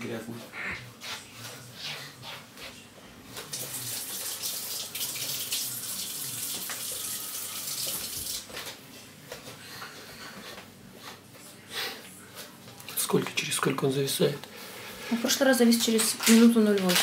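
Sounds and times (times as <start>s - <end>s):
water running from a tap: 3.5s - 8.5s.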